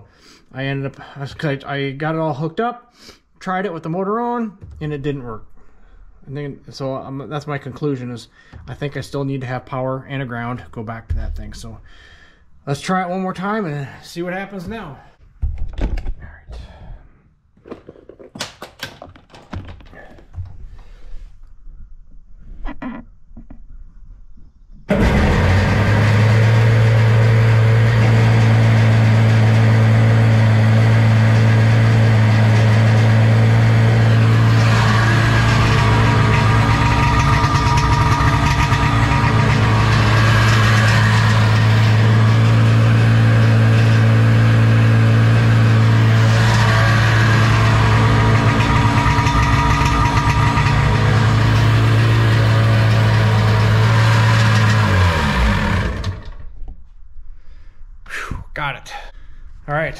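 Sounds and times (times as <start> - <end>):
two-stroke engine idling: 24.9 - 43.5, 45.8 - 56.1.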